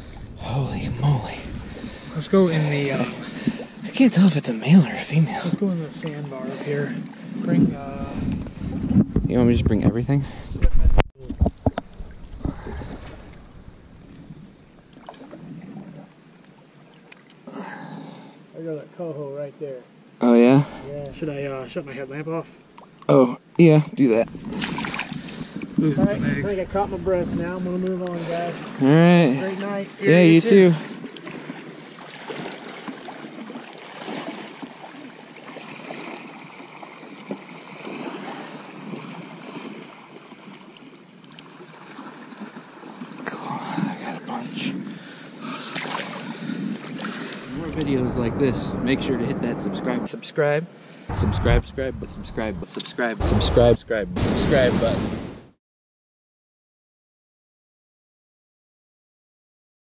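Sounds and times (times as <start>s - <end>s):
river water splashing and lapping: 0.0s - 9.2s, 11.4s - 47.9s
sharp splashes and knocks: 10.8s - 15.6s, 24.4s - 25.6s, 30.9s - 38.0s, 45.7s - 47.2s.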